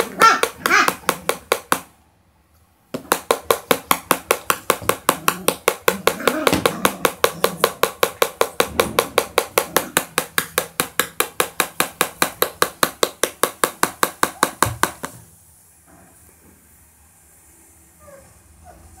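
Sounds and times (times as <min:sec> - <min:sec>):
rapid sharp knocking: 0:00.0 - 0:01.9, 0:02.9 - 0:15.2.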